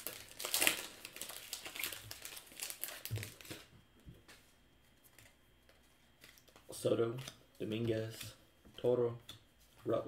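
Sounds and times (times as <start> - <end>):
wrapper tearing and crinkling: 0.0 - 3.7.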